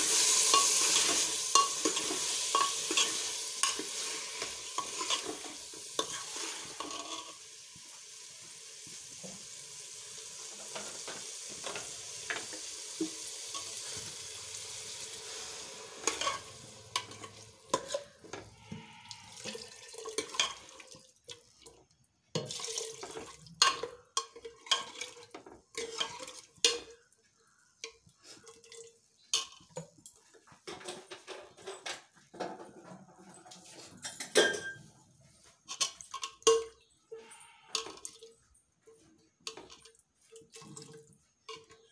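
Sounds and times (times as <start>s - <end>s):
potatoes sizzling in a pot: 0.0s - 28.4s
metal ladle scraping a pot: 0.1s - 7.5s, 13.4s - 20.7s, 23.6s - 27.0s.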